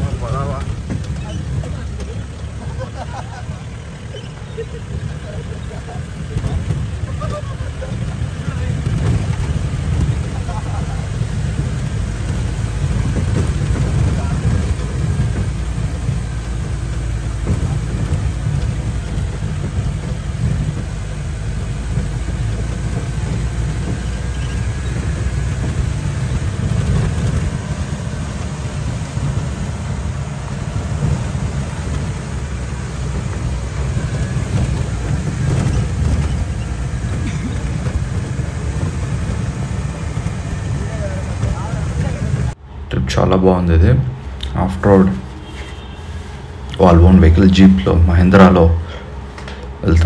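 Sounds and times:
jeep engine and cabin rumble: 0.0s - 50.0s.

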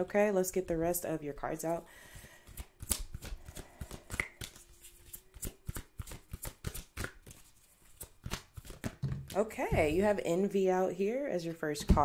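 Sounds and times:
cards shuffled and flicked: 2.4s - 9.4s.

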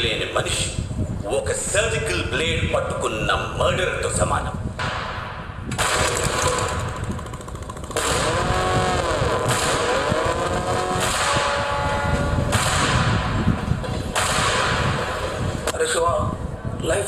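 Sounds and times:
motorcycle engine revving: 6.0s - 15.7s.

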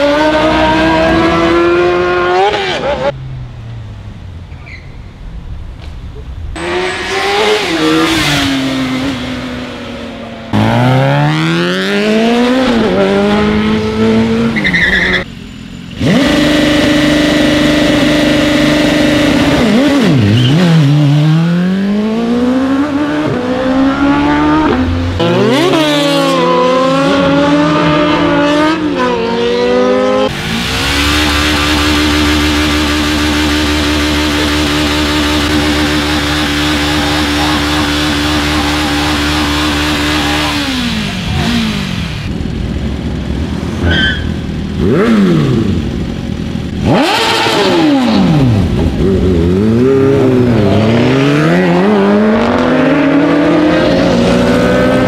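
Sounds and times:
motorcycle burnout at high revs: 0.0s - 3.2s, 6.6s - 15.3s, 16.0s - 55.0s
motorcycles revving and accelerating: 0.0s - 3.5s, 6.6s - 55.0s.

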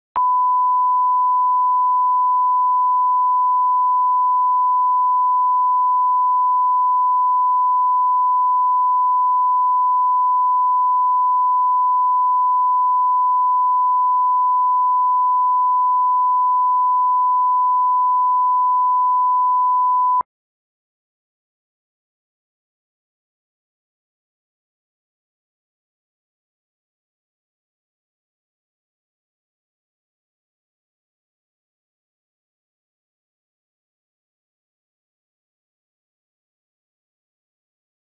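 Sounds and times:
steady sine-wave test tone: 0.2s - 20.2s.

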